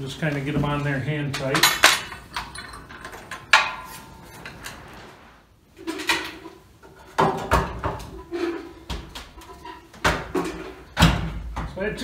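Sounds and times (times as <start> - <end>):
metal hardware knocks and clunks: 0.5 - 4.8
metal nuts clinking: 1.3 - 4.8.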